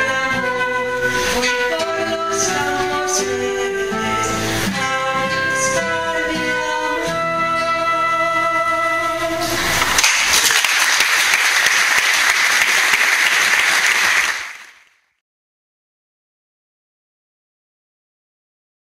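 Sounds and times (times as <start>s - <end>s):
flute: 0.0s - 9.8s
guitar: 0.0s - 10.6s
woman singing: 1.6s - 7.2s
audience applause: 9.3s - 14.9s.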